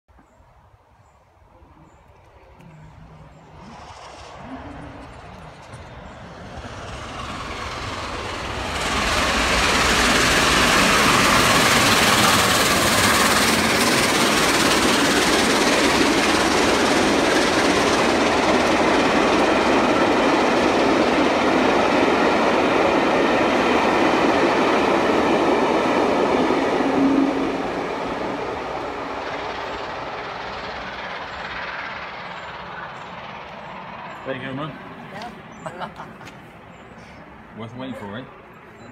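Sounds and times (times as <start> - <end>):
steam train passing: 1.2 - 38.9
loud rush of train: 1.9 - 38.9.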